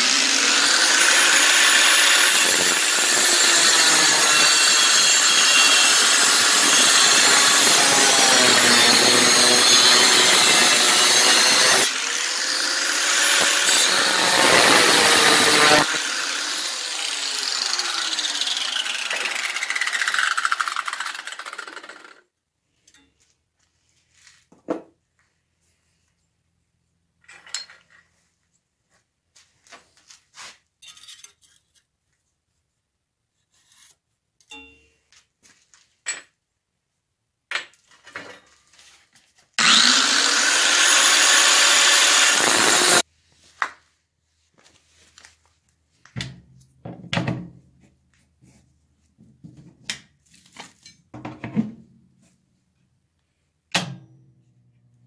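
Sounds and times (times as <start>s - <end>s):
power tool running: 0.0s - 22.1s, 39.6s - 43.0s
metalworking tools clinking: 27.2s - 28.1s, 30.8s - 31.8s.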